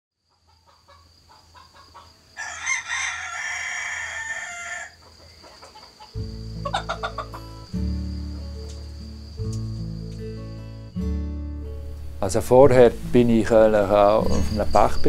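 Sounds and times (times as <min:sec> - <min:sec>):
hen clucking: 0:00.3 - 0:02.2, 0:04.6 - 0:07.8
rooster crowing: 0:01.6 - 0:07.5
acoustic guitar music: 0:06.1 - 0:15.0.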